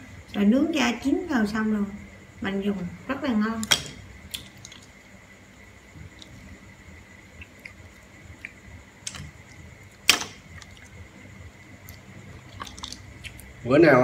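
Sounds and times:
mussel shells clicking: 0:03.6 - 0:04.9, 0:11.8 - 0:13.5.

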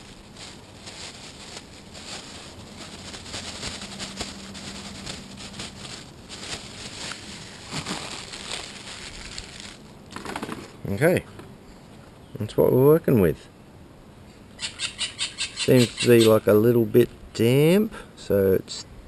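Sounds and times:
plastic bag crinkling: 0:00.0 - 0:10.7.

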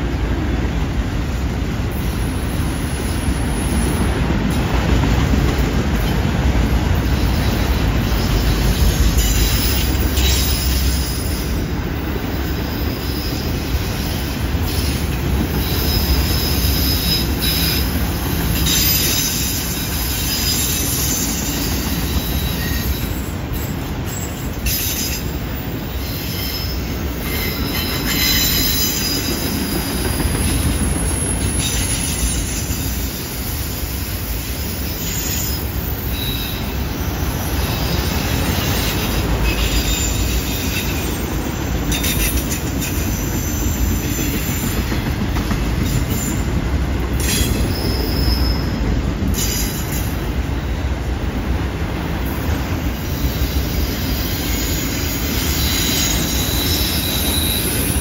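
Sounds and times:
train wheels rumbling on rail: 0:00.0 - 0:58.0
high wheel squeal: 0:07.0 - 0:11.6, 0:12.3 - 0:45.0, 0:47.2 - 0:50.2, 0:52.9 - 0:58.0.

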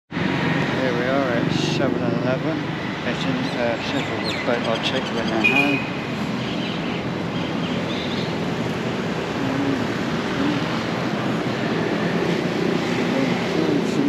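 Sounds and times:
street traffic rushing: 0:00.1 - 0:14.0
faint voices: 0:00.8 - 0:05.8, 0:09.2 - 0:14.0.

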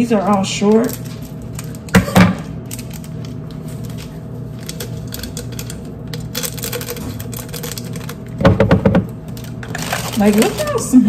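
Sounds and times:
flower stems and wrapping rustling: 0:00.0 - 0:02.0, 0:09.3 - 0:11.0.

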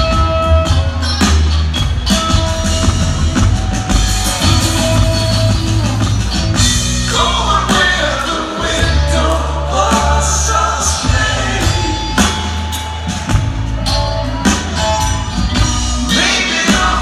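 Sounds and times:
live rock band playing: 0:00.0 - 0:17.0
lead vocal singing: 0:07.0 - 0:17.0.

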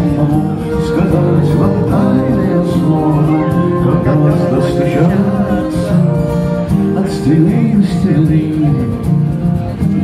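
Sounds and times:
acoustic guitar strumming: 0:00.0 - 0:10.0
violin playing: 0:00.2 - 0:07.1.

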